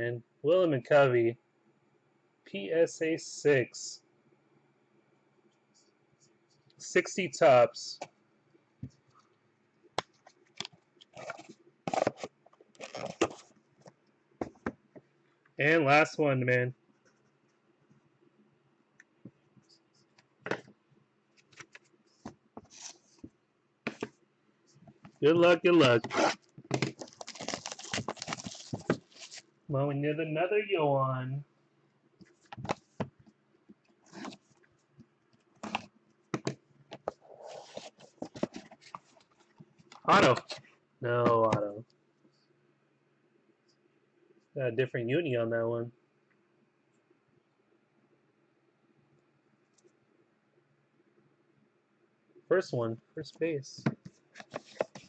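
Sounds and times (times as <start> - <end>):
plastic shrink wrap crinkling: 26.0 - 29.4.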